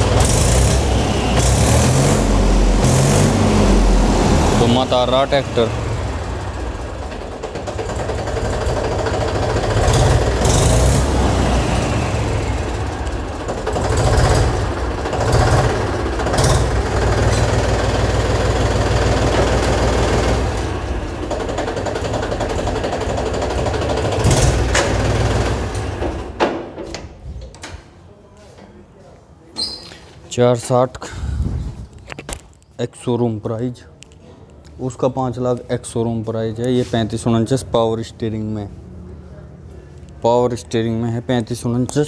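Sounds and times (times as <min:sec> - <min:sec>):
tractor diesel engine rumbling: 0:00.0 - 0:26.4.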